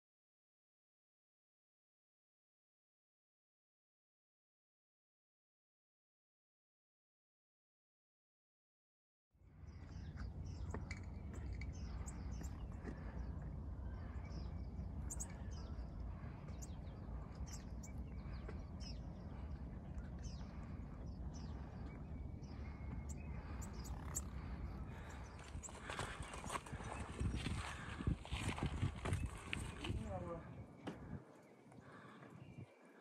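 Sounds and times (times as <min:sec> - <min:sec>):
small birds chirping: 0:09.4 - 0:33.0
wind rumbling on microphone: 0:09.5 - 0:31.4.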